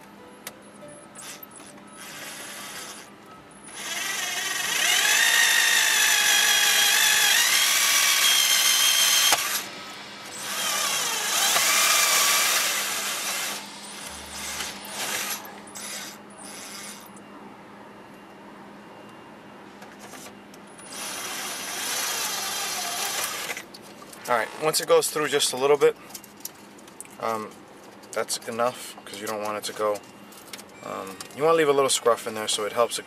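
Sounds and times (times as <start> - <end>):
cordless drill boring through plastic: 2.0 - 3.1, 3.8 - 9.7, 10.4 - 13.6, 14.4 - 17.0, 20.9 - 23.6.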